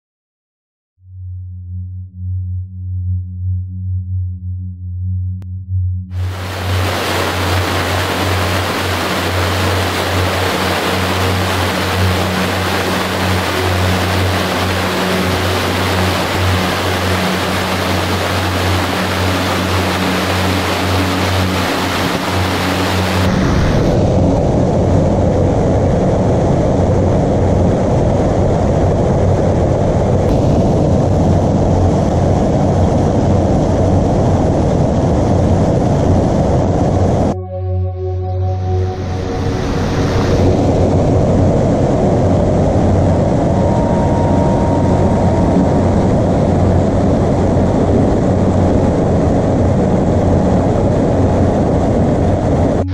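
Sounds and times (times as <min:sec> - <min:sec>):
water rushing over rapids: 0:06.2 - 0:24.0.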